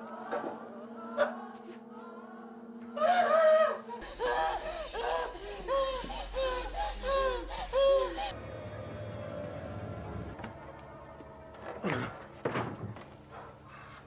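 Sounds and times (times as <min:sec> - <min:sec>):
low drone: 0:00.0 - 0:12.4
woman wailing: 0:03.0 - 0:08.4
women crying: 0:03.0 - 0:08.7.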